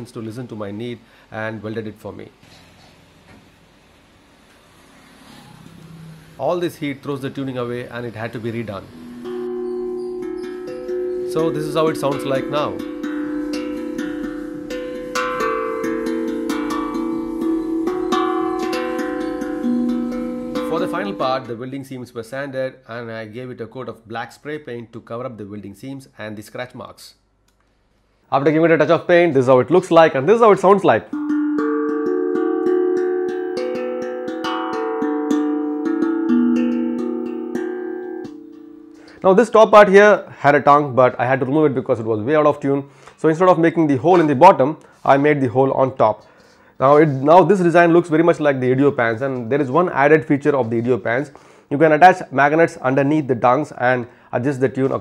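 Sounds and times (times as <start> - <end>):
steel tongue drum melody: 5.6 - 21.8, 30.6 - 39.2.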